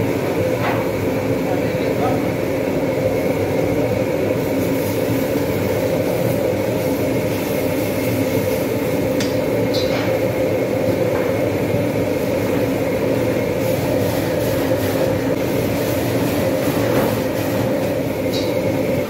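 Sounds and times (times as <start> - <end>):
gas burner roaring: 0.0 - 19.0.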